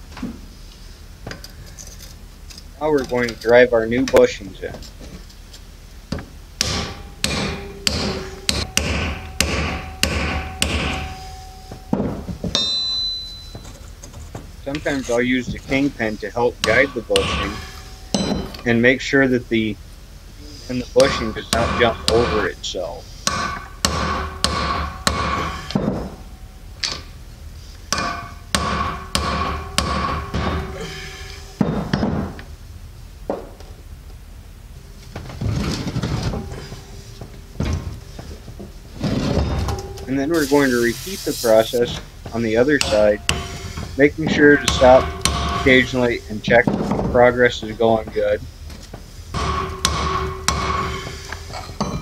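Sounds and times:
hammer striking metal: 6.6 - 13.6, 16.4 - 18.7, 21.0 - 22.6, 23.2 - 27.0, 27.9 - 32.2, 39.2 - 46.2, 49.4 - 52.0.

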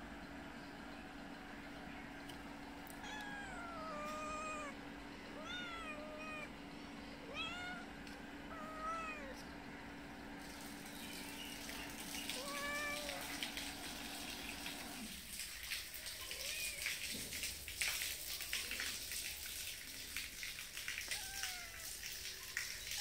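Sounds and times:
cat meowing: 3.0 - 6.5, 7.2 - 9.4, 12.3 - 13.4, 21.0 - 22.0.

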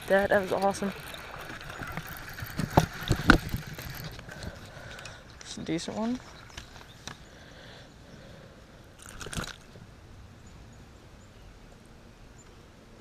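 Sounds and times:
crunch of gravel: 0.0 - 7.2, 9.0 - 9.8
faint outdoor background: 0.0 - 13.0.

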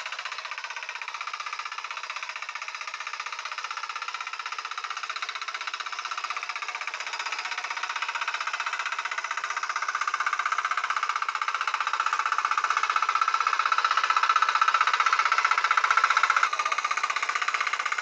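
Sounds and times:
mini tiller engine running: 0.0 - 18.0.

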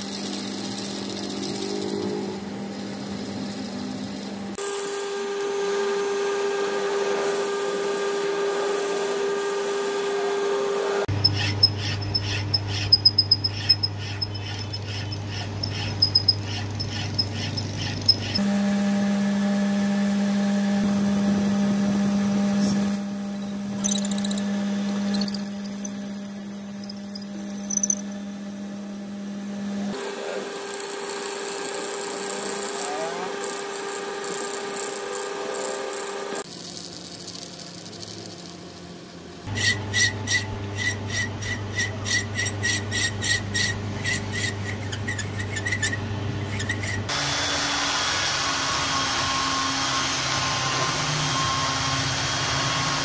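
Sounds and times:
regular pulsing: 0.0 - 4.6, 36.4 - 39.5
drill bit squealing: 0.0 - 5.0, 11.1 - 18.4, 22.3 - 29.3, 30.7 - 47.1
tool cutting wood: 11.0 - 18.5, 29.9 - 39.6, 46.7 - 53.0.

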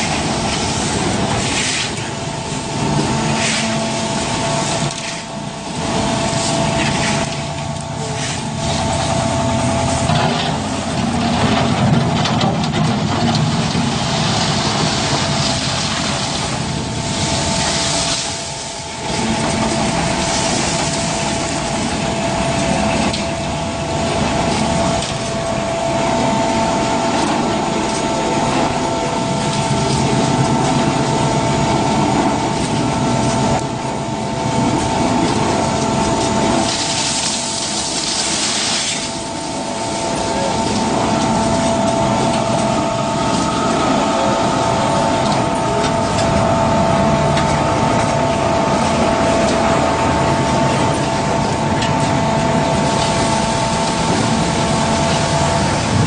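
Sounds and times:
concrete mixer pump running: 0.0 - 56.0
constant whining tones: 14.8 - 56.0.

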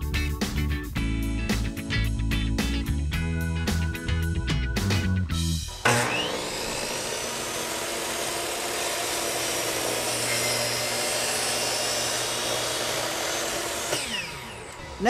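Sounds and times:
miter saw cutting board: 5.7 - 15.0.

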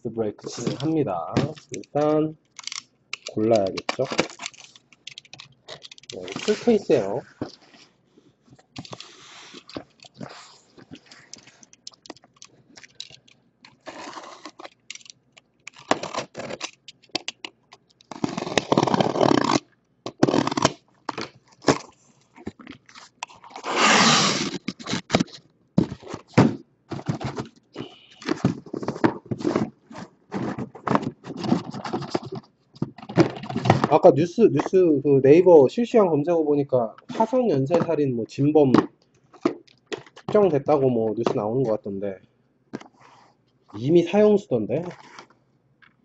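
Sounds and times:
shrink-wrapped boxes handled: 3.3 - 7.9, 8.6 - 15.1, 15.7 - 34.0, 44.8 - 45.3
cardboard scraping and crunching: 6.2 - 7.8, 13.8 - 14.6, 18.1 - 21.9, 28.2 - 32.4.

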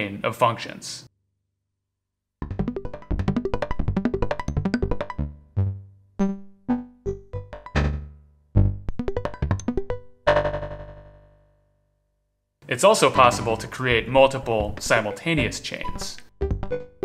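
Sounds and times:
low bass tones: 2.4 - 11.2
plucked synthesizer notes: 2.4 - 11.5.

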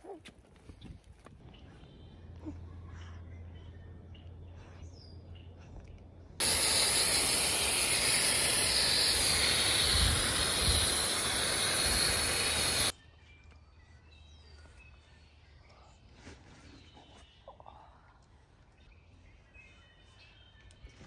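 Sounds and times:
garden hose spraying water: 6.4 - 13.0.

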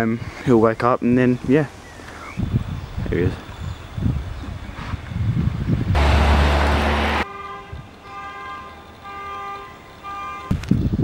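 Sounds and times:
rush of noise with deep rumble: 4.0 - 7.2
car alarm horn beeping: 7.1 - 10.6.

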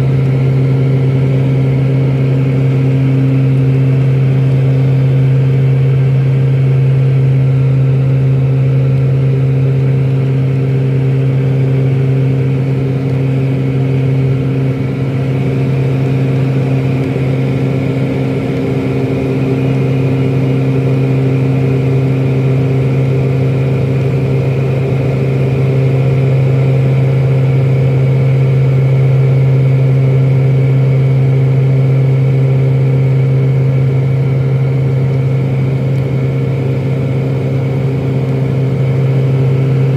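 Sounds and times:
high turbine whine: 0.0 - 28.9
low propeller hum: 0.0 - 39.9.

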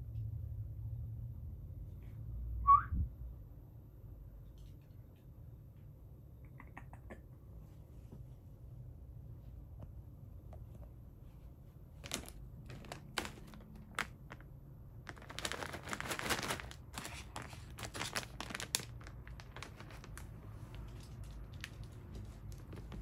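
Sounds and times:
plastic bag crinkling: 12.0 - 23.0.

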